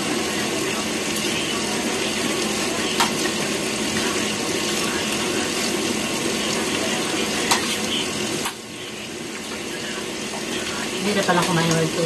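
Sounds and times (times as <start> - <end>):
steady hiss: 0.0 - 12.0.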